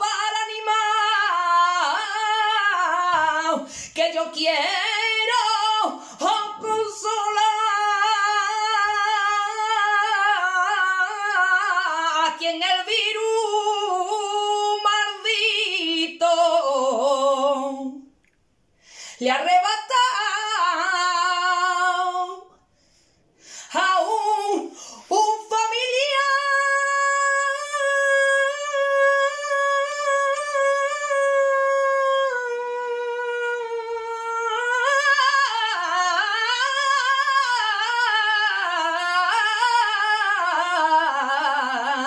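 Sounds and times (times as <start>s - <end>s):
woman singing unaccompanied: 0.0s - 18.1s, 19.2s - 22.6s, 23.7s - 42.0s
singer breathing: 3.6s - 4.0s, 5.9s - 6.2s, 18.7s - 19.2s, 22.6s - 23.8s, 24.6s - 25.1s.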